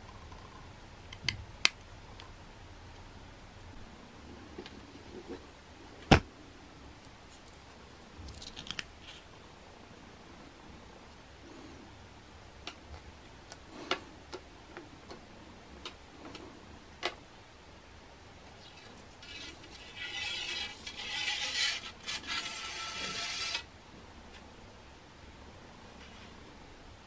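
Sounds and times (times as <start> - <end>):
foil tape crinkling: 8.2 - 9.2.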